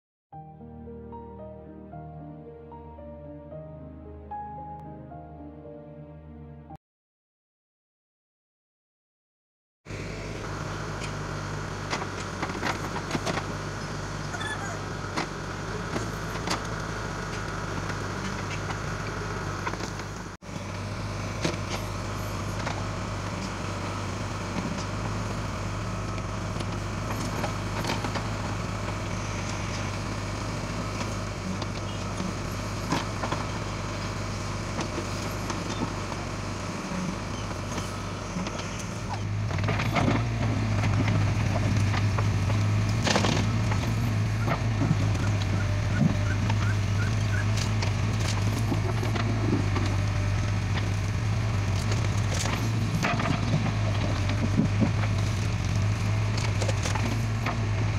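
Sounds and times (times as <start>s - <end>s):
diesel engine running: 9.9s - 57.9s.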